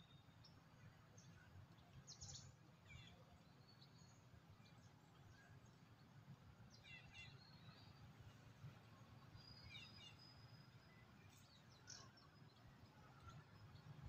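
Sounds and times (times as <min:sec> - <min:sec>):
faint bird chirps: 0:00.0 - 0:06.0, 0:09.3 - 0:14.0.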